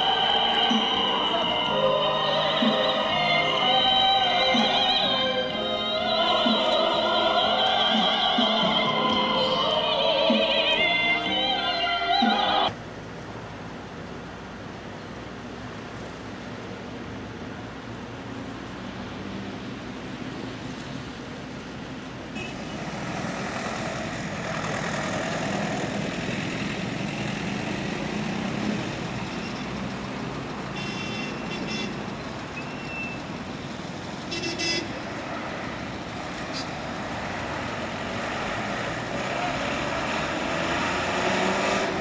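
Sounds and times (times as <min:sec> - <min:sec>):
traffic noise: 0:00.0 - 0:42.0
short horn toots: 0:34.3 - 0:35.0.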